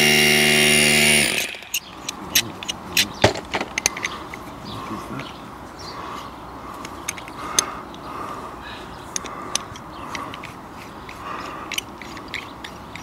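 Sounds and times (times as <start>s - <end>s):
soft scraping strokes: 9.7s - 13.0s.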